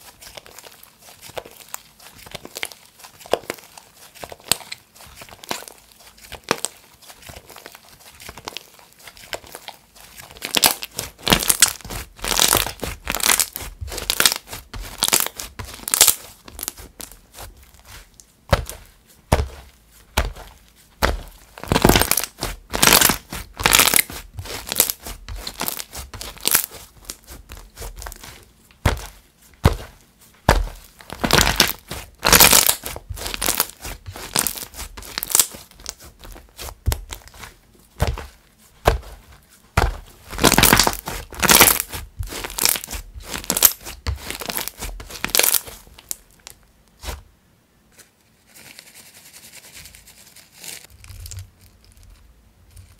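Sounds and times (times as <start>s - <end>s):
slime squished by hand: 0.0s - 47.3s
slime crackling pops and tearing: 10.4s - 17.1s, 21.0s - 27.2s, 30.5s - 38.2s, 39.8s - 46.4s.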